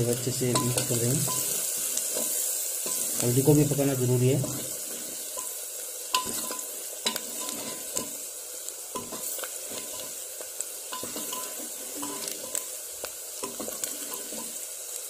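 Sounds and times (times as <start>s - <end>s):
vegetables sizzling in hot oil: 0.0s - 15.0s
metal ladle scraping a pot: 6.2s - 8.0s, 13.4s - 14.6s.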